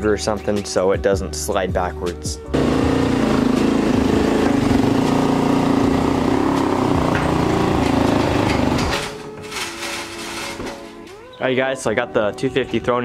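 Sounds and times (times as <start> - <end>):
dirt bike engine running: 2.5 - 9.1.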